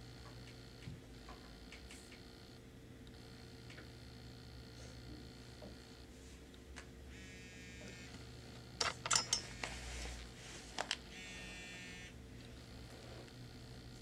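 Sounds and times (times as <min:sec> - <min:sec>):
small motor whirring: 0:07.1 - 0:08.6, 0:09.4 - 0:14.0.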